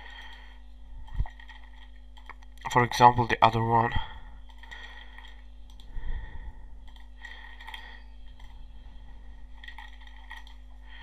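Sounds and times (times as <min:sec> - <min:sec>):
steady low hum: 0:00.0 - 0:11.0
keyboard typing: 0:01.0 - 0:02.7, 0:04.4 - 0:05.9, 0:06.8 - 0:08.6, 0:09.5 - 0:10.8.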